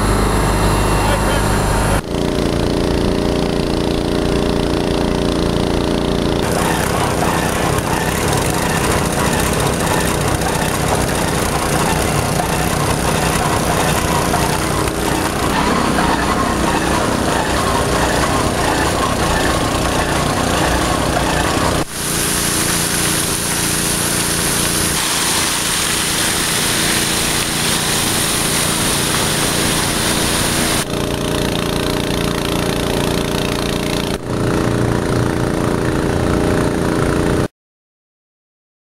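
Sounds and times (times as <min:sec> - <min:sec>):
water pump engine running: 0:00.0 - 0:37.5
water rushing from hose: 0:00.4 - 0:34.7.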